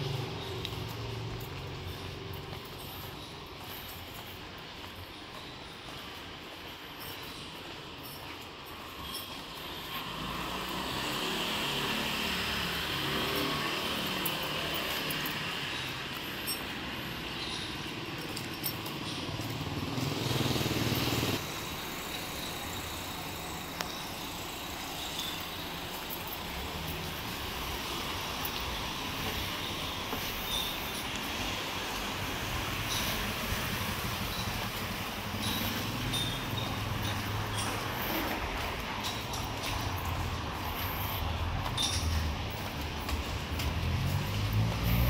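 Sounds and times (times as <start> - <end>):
traffic hum: 0.0 - 45.0
motor vehicle engine running: 10.1 - 45.0.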